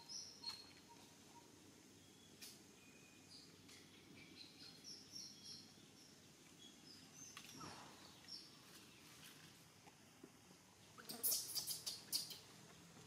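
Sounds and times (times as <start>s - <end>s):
faint high-pitched chirps: 0.0s - 8.5s, 11.0s - 12.5s.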